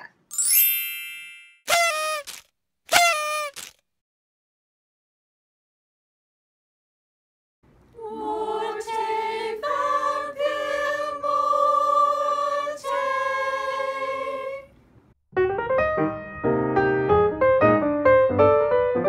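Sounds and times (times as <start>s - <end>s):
voices singing a chord: 8.0s - 14.7s
piano music: 15.3s - 19.0s.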